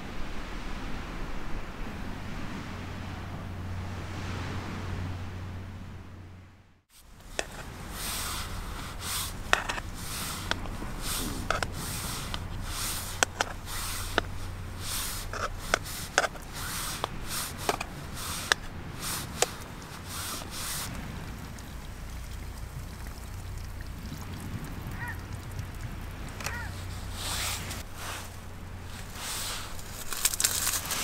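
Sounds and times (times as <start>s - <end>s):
low steady hum: 0.0s - 31.0s
rustling: 7.0s - 22.8s, 26.0s - 31.0s.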